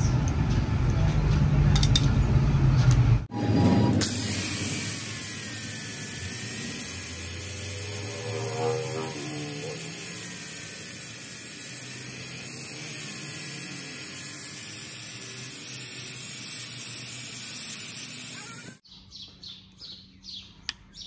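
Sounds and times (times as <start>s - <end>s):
angle grinder grinding steel: 3.3s - 18.8s
bird chirping: 18.8s - 21.0s.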